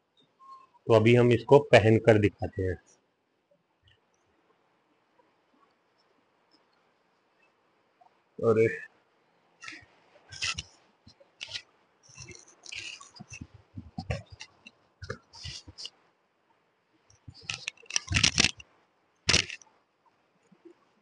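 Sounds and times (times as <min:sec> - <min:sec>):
jacket rustling: 0:17.3 - 0:18.6, 0:19.3 - 0:19.6.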